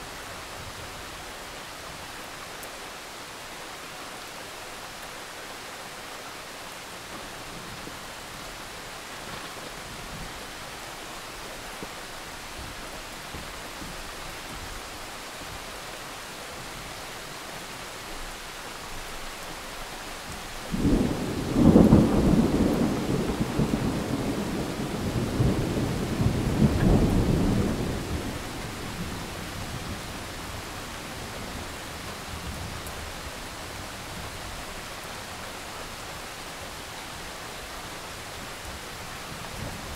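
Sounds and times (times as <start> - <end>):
steady rain: 0.0 - 39.9
thunder rumbling: 20.7 - 30.8.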